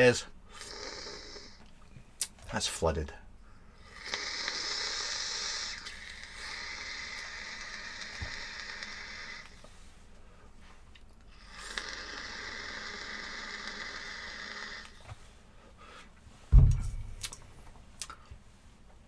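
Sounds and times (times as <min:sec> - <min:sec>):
vape coil hissing: 0:00.6 - 0:01.6, 0:03.9 - 0:09.6, 0:11.4 - 0:15.0
loud low thump: 0:16.5 - 0:17.3.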